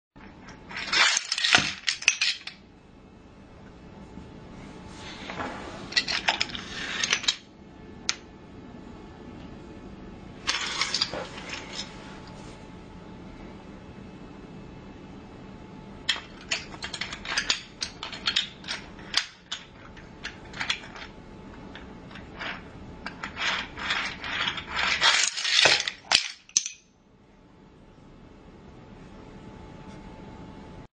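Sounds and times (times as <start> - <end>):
toy train clicking and rattling: 16.1 - 21.1, 21.7 - 26.8.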